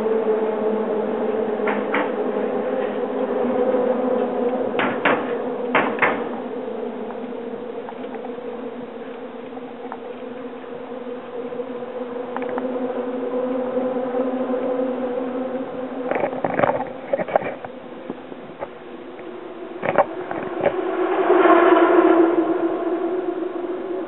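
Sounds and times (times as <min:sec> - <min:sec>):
steady buzzing hum: 0:00.0 - 0:24.0
sharp knocks: 0:04.8 - 0:06.3.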